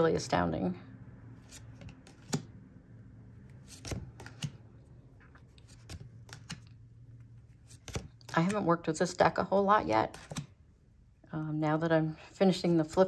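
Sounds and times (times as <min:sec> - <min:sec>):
cards being flipped: 0:01.4 - 0:02.6, 0:03.4 - 0:08.7, 0:09.8 - 0:10.6.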